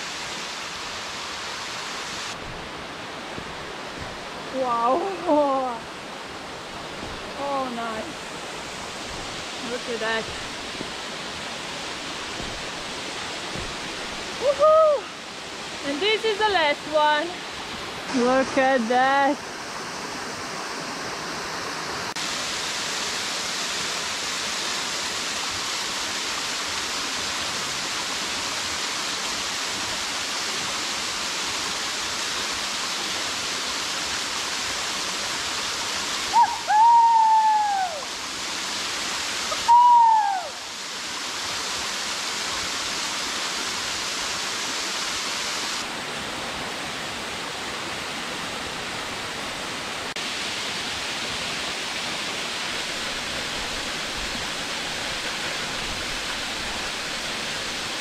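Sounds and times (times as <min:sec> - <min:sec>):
waterfall rushing: 0:00.0 - 0:58.0
short high calls: 0:36.3 - 0:38.1, 0:39.5 - 0:40.7.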